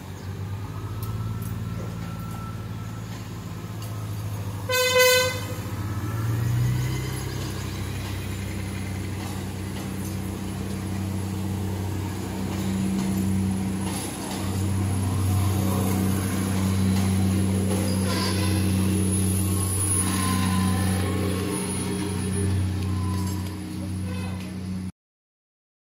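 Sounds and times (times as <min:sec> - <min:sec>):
diesel train engines droning: 0:00.0 - 0:24.9.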